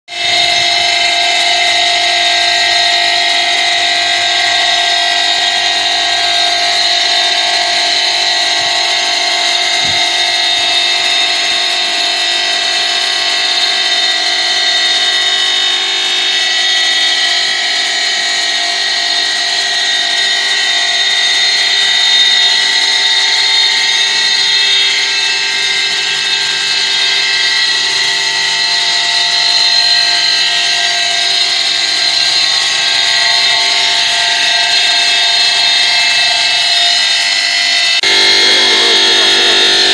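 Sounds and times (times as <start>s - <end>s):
stone saw high whine: 0.1s - 39.9s.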